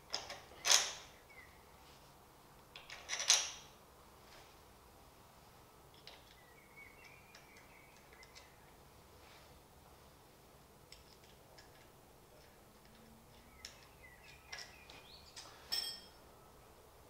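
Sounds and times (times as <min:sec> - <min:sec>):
metal clicks of nut and bolt: 0:00.1 - 0:01.1, 0:02.7 - 0:03.7, 0:07.0 - 0:08.6, 0:10.9 - 0:16.1.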